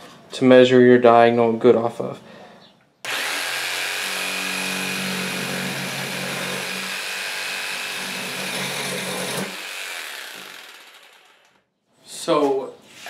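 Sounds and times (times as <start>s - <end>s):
jigsaw cutting metal: 3.1s - 11.6s.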